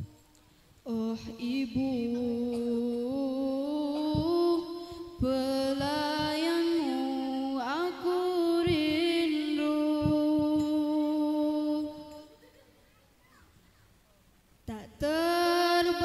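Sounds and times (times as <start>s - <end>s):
woman singing wordless melisma: 0.0s - 12.4s, 14.7s - 16.0s
soft low drum thumps: 1.4s - 3.2s, 3.8s - 9.3s, 9.9s - 10.8s.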